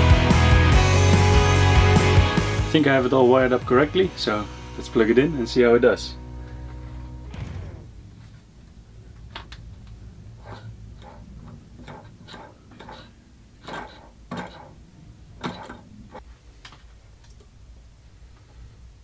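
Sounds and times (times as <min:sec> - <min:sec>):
low steady hum: 0:04.5 - 0:19.0.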